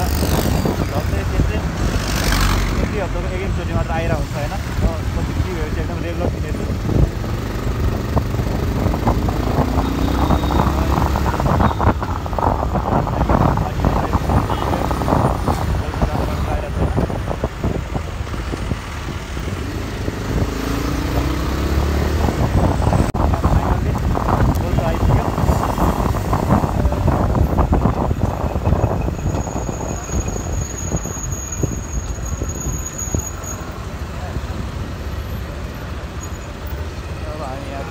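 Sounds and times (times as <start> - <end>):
wind buffeting microphone: 0.0 - 32.8
motorcycle engine and road rumble: 0.0 - 37.9.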